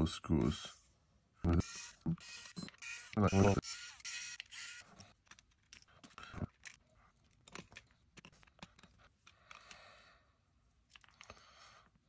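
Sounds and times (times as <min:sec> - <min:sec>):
tiny screws clicking and clinking: 0:01.5 - 0:10.0, 0:10.8 - 0:11.4.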